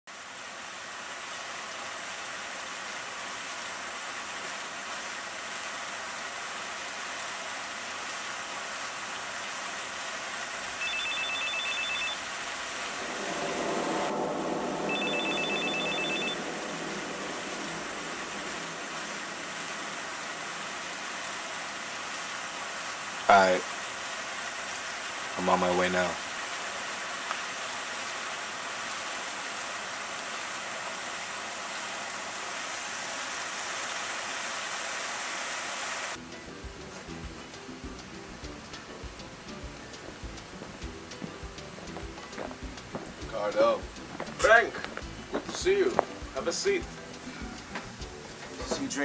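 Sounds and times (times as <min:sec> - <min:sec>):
fountain water rushing: 0:00.1 - 0:49.0
cell phone ringing: 0:10.8 - 0:12.3, 0:14.9 - 0:16.5
low rumble: 0:12.8 - 0:21.7.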